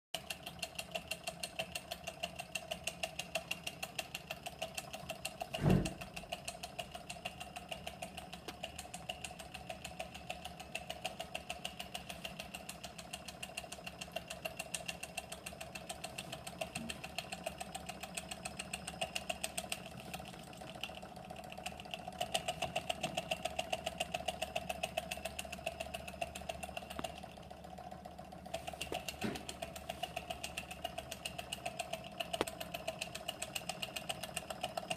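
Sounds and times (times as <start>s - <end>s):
model engine clicking: 0.2s - 34.9s
loud thump: 5.6s - 6.0s.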